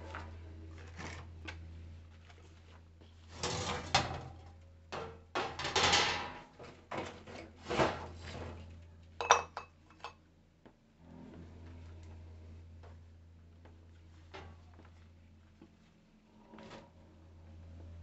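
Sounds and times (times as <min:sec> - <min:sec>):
metal and plastic clattering: 0:05.0 - 0:08.6.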